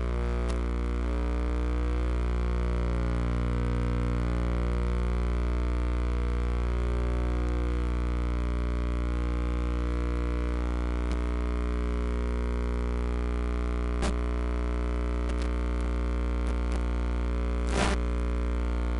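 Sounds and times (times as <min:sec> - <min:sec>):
steady low hum: 0:00.0 - 0:18.9
faint clicks: 0:15.2 - 0:16.8.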